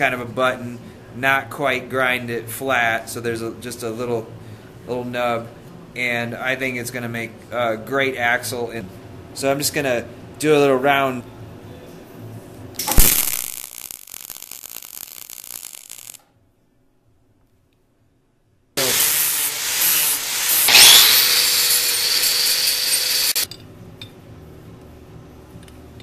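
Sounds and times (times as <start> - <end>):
welding arc crackling: 12.8 - 16.2, 18.8 - 23.5
angle grinder grinding metal: 18.8 - 23.5.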